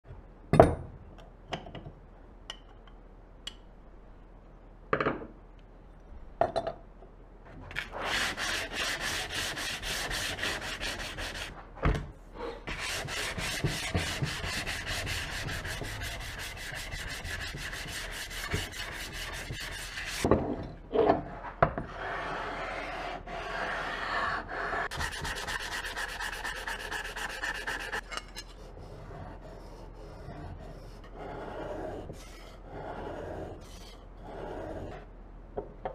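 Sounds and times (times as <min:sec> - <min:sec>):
scraping on sharpening stone: 0:24.8 - 0:28.6.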